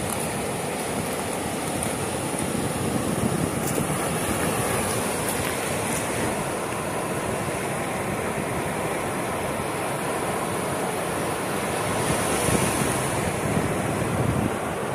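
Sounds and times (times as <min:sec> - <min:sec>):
waves breaking on sandy shore: 0:00.0 - 0:14.9
wind rumble on microphone: 0:01.0 - 0:06.8, 0:11.8 - 0:14.9.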